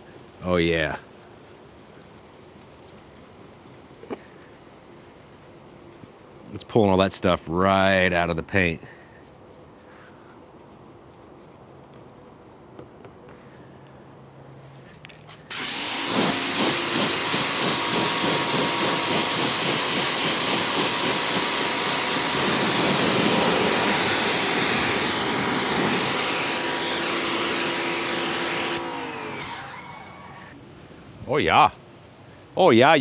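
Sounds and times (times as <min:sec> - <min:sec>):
motor-driven machine hissing: 0:15.5 - 0:30.6.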